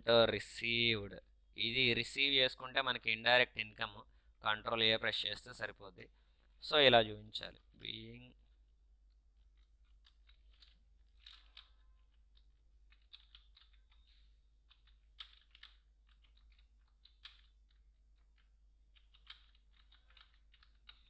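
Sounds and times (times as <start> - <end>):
keyboard typing: 9.4 - 21.0.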